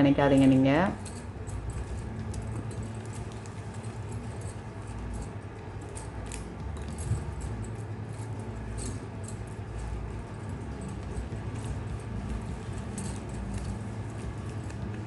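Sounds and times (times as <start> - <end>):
low steady hum: 0.0 - 15.0
plastic wire strands rustling and clicking: 0.0 - 15.0.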